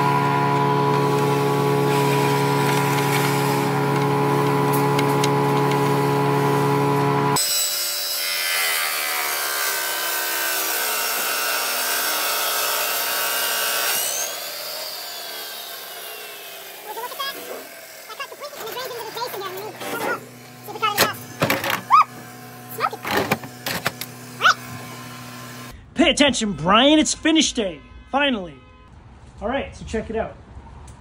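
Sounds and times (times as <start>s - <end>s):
saw motor hum: 0.0s - 25.8s
saw blade grinding stone: 7.4s - 25.7s.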